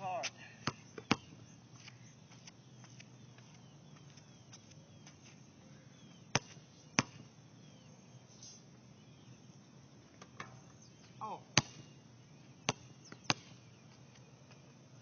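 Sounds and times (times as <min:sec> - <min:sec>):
basketball bouncing: 0:00.6 - 0:01.3, 0:06.3 - 0:07.2, 0:11.6 - 0:11.8, 0:12.7 - 0:13.6.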